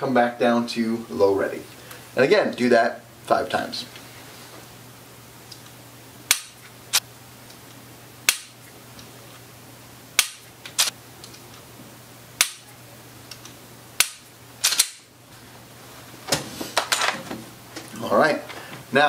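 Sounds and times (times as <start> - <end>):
pistol dry-fire clicks: 13.3 - 15.0.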